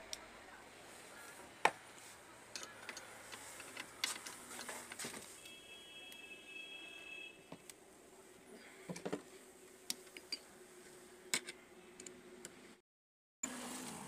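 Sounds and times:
faint high tone: 2.2s - 3.4s.

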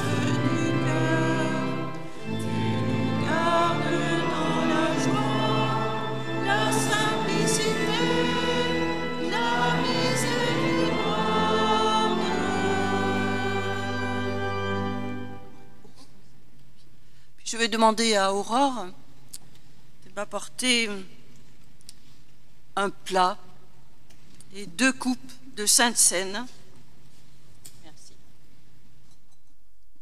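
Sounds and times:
congregation singing a chant: 0.0s - 15.5s
held low accompaniment notes: 0.0s - 15.7s.

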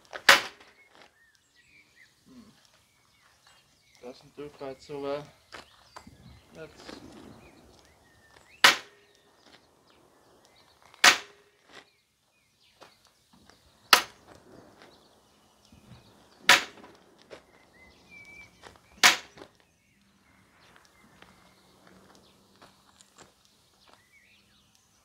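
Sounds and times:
sharp wooden knocks: 0.2s - 0.7s, 8.6s - 9.0s, 11.0s - 11.4s, 13.9s - 14.3s, 16.4s - 17.0s, 19.0s - 19.5s.

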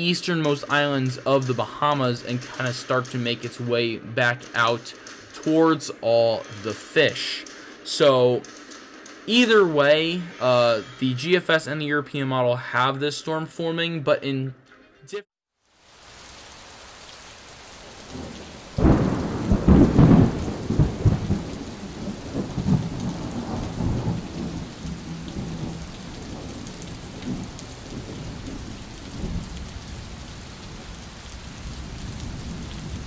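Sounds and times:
steady rain: 0.0s - 10.3s, 15.6s - 33.0s
thunderclap rumbling: 18.0s - 33.0s.

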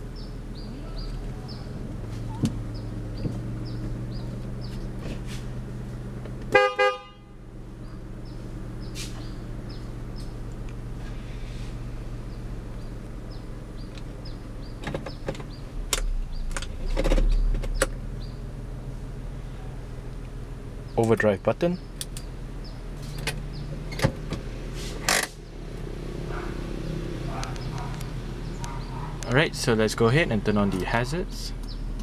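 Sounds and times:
car engine idling: 0.0s - 32.0s
car horn toots: 6.5s - 7.5s
gear selector clicks: 14.8s - 18.0s, 22.0s - 22.3s.

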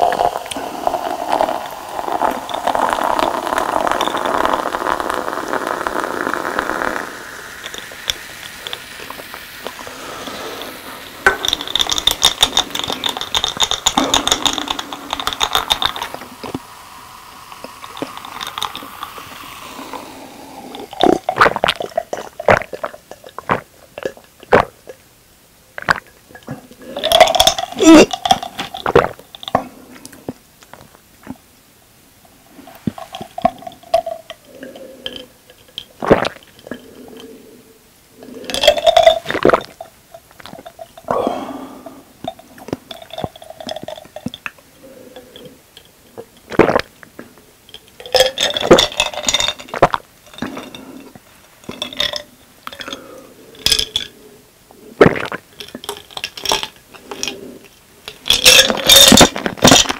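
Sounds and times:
person gulping: 0.0s - 25.1s, 25.8s - 31.4s, 32.6s - 37.4s, 38.2s - 59.9s
person burping: 11.2s - 16.5s, 25.8s - 29.7s, 41.0s - 45.5s, 46.5s - 46.9s, 55.0s - 55.4s
ice cubes clinking in glass: 48.0s - 49.8s, 58.2s - 59.9s.

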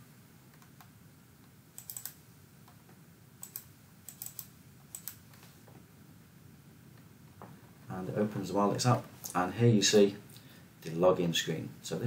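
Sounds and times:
computer mouse clicks: 0.5s - 0.9s, 1.8s - 2.8s, 3.4s - 5.5s.

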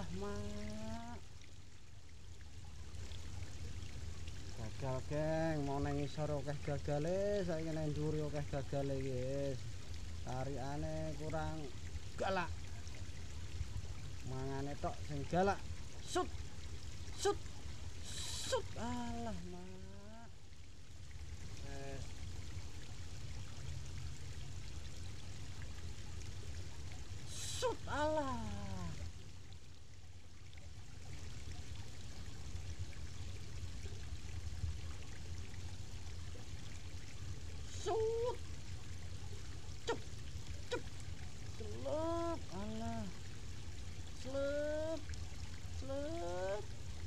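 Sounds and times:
river water flowing over rocks: 0.0s - 47.0s
short pitched calls: 18.0s - 18.7s, 27.3s - 28.0s.

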